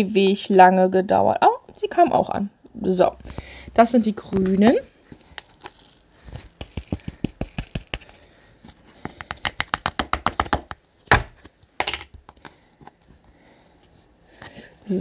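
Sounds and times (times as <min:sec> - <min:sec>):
beads clicking into plastic container: 0:05.4 - 0:08.0.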